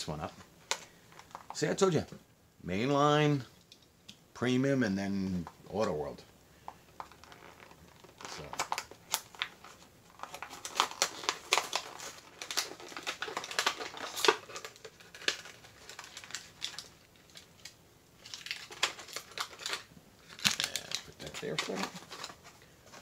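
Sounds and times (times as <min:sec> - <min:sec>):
plastic packaging crinkling: 0:00.0 - 0:01.7, 0:06.9 - 0:23.0.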